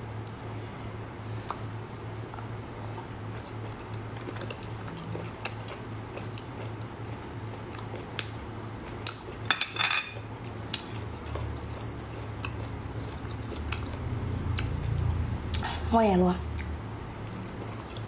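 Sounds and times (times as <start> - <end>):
low steady hum: 0.0 - 18.0
shells clinking on a plate: 9.5 - 10.2.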